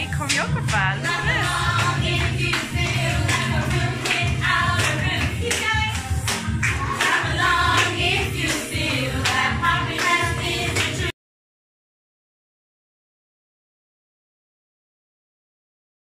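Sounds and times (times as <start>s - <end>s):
group of voices singing: 0.0s - 11.1s
hand claps: 0.1s - 11.1s.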